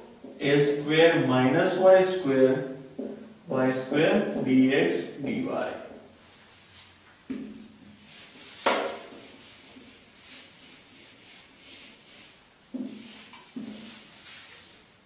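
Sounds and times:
duster wiping whiteboard: 6.3 - 14.9.

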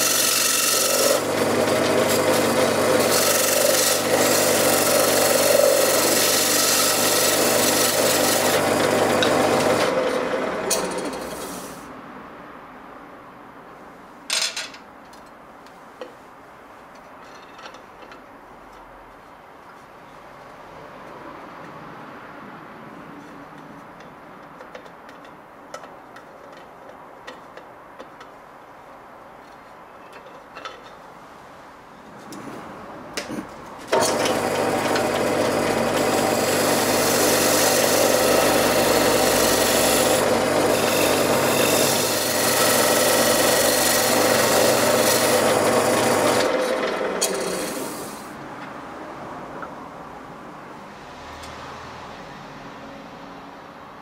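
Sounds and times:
lathe motor hum: 0.0 - 11.6, 33.9 - 48.2
lathe tool cutting wood: 0.0 - 11.8, 33.9 - 48.3
steady background hiss: 11.2 - 34.0.

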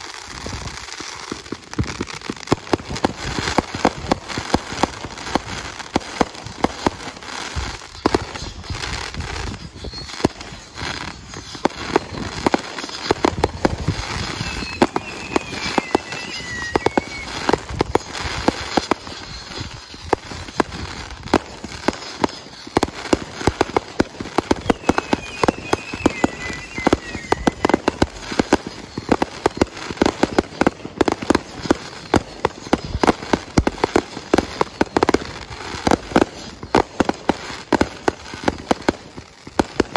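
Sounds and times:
fireworks bangs and crackling: 0.0 - 39.9
wavering high whistle: 8.2 - 21.1, 24.1 - 30.3.

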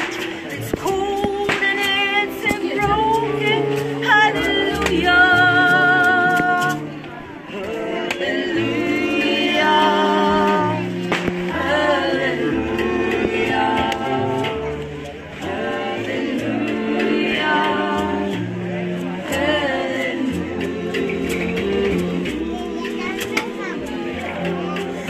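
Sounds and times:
double bass line: 0.0 - 25.0
group singing: 0.0 - 25.0
small band playing: 0.0 - 25.0.

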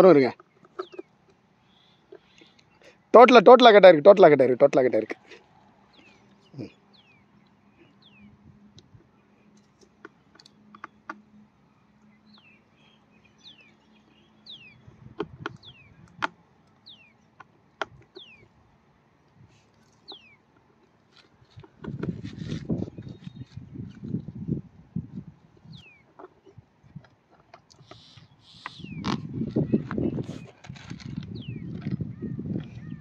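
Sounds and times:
bird whistling calls: 27.8 - 30.6.

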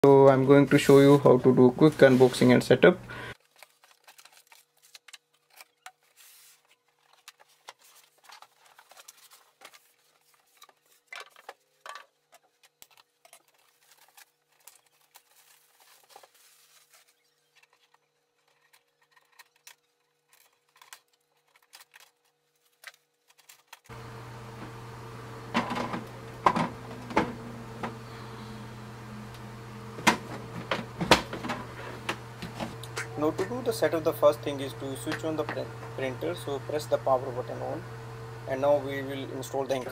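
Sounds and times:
packaging rustling and clicking: 3.4 - 24.0
steady low hum: 23.9 - 39.9.

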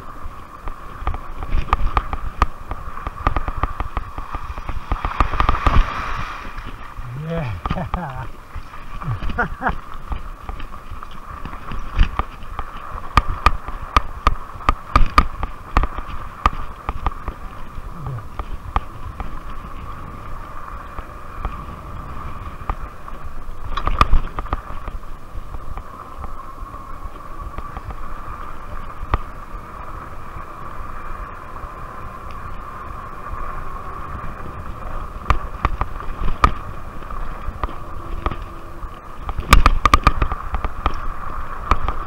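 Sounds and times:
low wind rumble: 0.0 - 42.0
bike rattling and knocking: 1.0 - 5.8, 11.4 - 17.4, 39.2 - 41.0.

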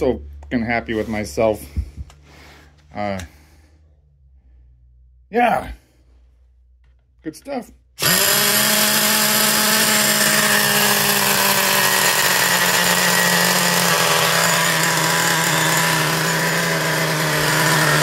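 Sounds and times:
nitro engine running: 8.0 - 18.0.

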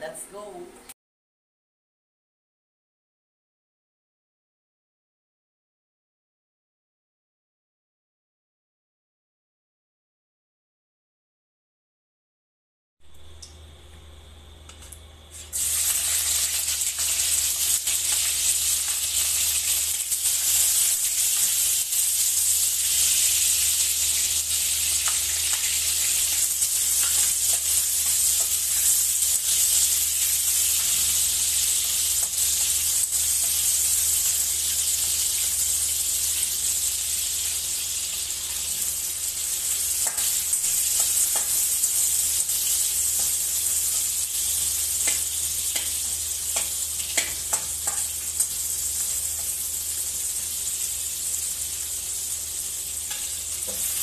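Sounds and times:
garlic sizzling in hot oil: 15.3 - 54.0.

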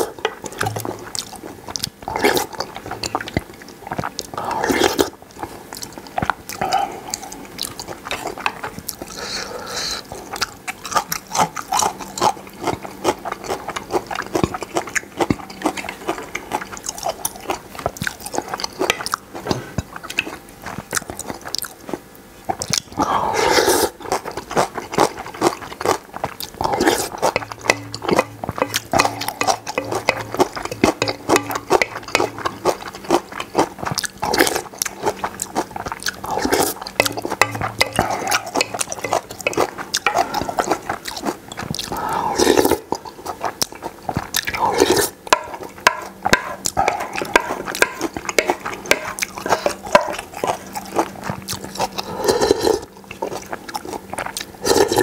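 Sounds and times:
slurping: 0.0 - 55.0
wet chewing: 0.0 - 55.0
utensils clicking against bowl: 27.0 - 34.6, 36.1 - 40.8.

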